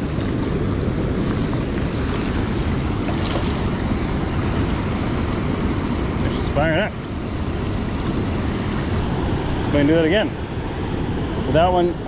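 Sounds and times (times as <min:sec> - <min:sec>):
brook flowing over rocks: 0:00.0 - 0:09.0
wind rumble on microphone: 0:00.0 - 0:12.0.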